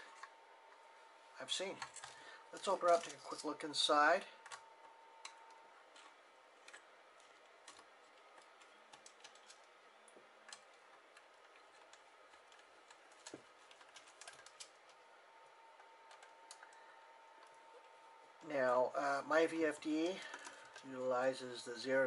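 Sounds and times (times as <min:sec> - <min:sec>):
fingers clicking and tapping a case: 0:05.2 - 0:15.0.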